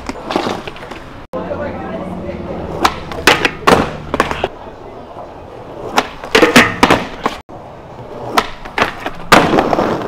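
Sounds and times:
skateboard hitting metal handrail: 0:05.9 - 0:07.3.

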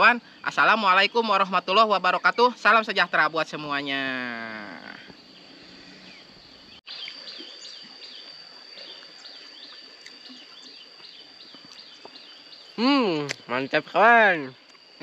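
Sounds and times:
high-pitched insect drone: 0:00.0 - 0:15.0
insect chirps: 0:00.0 - 0:15.0.

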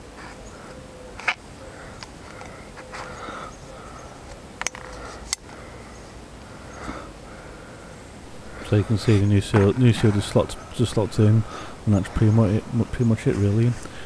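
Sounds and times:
gloved hands rubbing plastic: 0:08.2 - 0:14.0.

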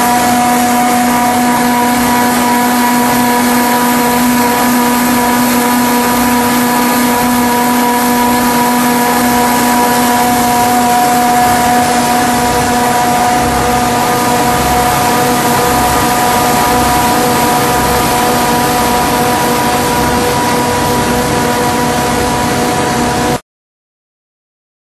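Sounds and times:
machinery hum: 0:00.0 - 0:23.4
mechanical noise: 0:00.0 - 0:23.4
slow low pulsing: 0:00.0 - 0:23.4.

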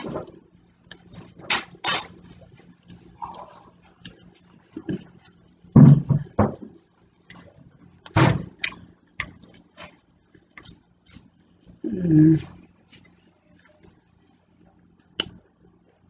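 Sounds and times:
low mouth sounds: 0:03.2 - 0:04.2.

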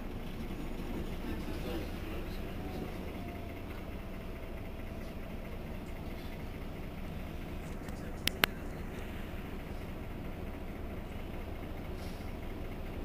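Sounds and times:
bus engine idling: 0:00.0 - 0:13.0
sharp click: 0:07.8 - 0:08.5.

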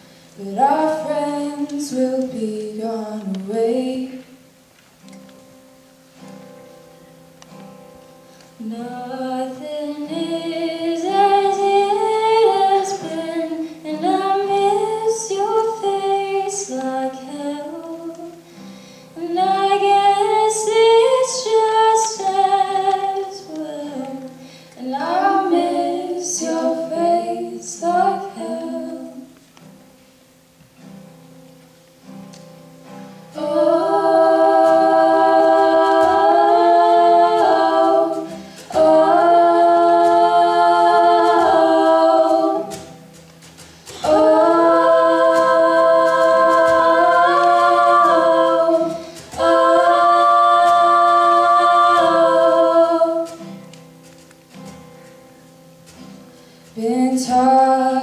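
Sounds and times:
choir singing a cappella: 0:00.4 - 0:03.0, 0:08.6 - 0:18.4, 0:19.2 - 0:29.4, 0:33.3 - 0:53.8, 0:56.8 - 0:58.0.

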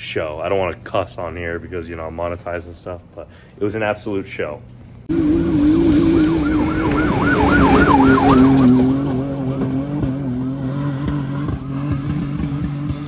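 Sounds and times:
warbling siren-like whine: 0:05.1 - 0:09.4
truck engine at high revs: 0:05.1 - 0:13.0.

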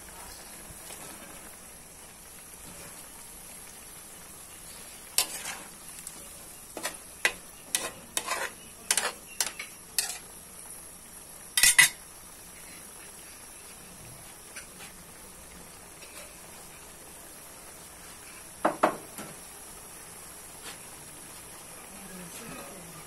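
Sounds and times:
faint sizzle: 0:00.0 - 0:23.0
metal tongs clinking on wok: 0:06.8 - 0:10.3, 0:11.6 - 0:12.0.

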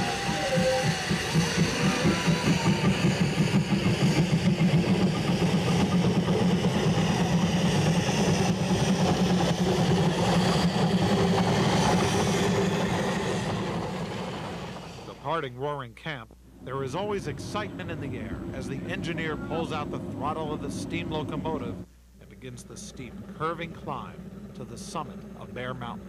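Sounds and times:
steam locomotive chuffing: 0:00.0 - 0:15.8, 0:16.6 - 0:26.0.

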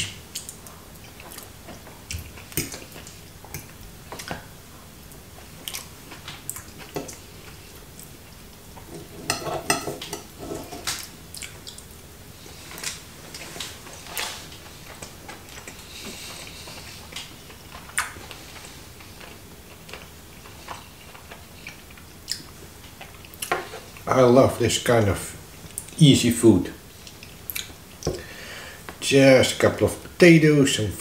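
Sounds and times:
chewing: 0:00.3 - 0:04.5, 0:05.4 - 0:09.1, 0:10.0 - 0:11.9, 0:12.5 - 0:24.0
cutlery scraping on a plate: 0:08.8 - 0:11.0.

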